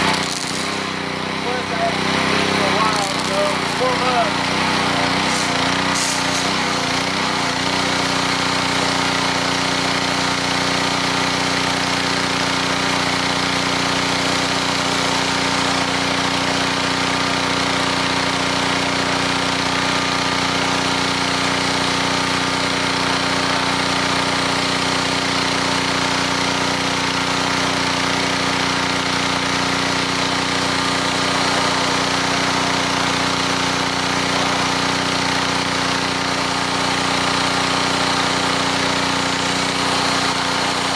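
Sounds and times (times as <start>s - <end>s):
pressure washer engine running: 0.0s - 40.9s
water jet hissing on stone: 1.7s - 10.8s, 29.8s - 40.9s.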